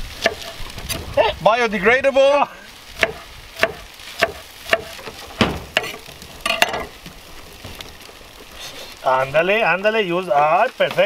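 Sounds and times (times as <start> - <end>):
spatula stirring in frying pan: 0.0 - 1.2, 2.7 - 9.1
faint sizzle: 0.0 - 11.0
knife chopping on wooden board: 3.0 - 6.0.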